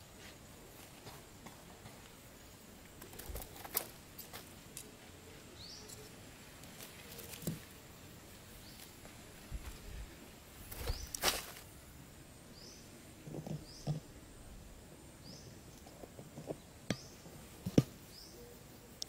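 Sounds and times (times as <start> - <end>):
hands rustling in sandy soil: 0.0 - 11.8
bird chirps: 5.6 - 6.2, 18.1 - 19.0.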